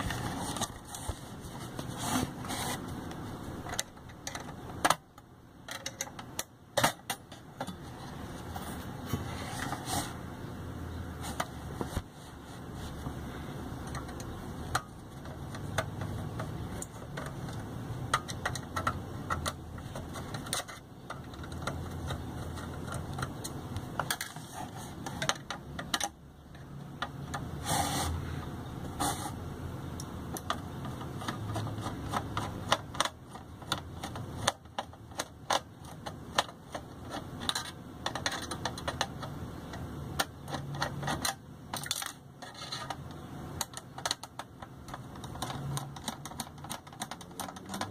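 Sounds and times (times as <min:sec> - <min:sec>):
screwdriver clicking on sheet metal: 0:13.8 - 0:24.4, 0:30.0 - 0:47.9.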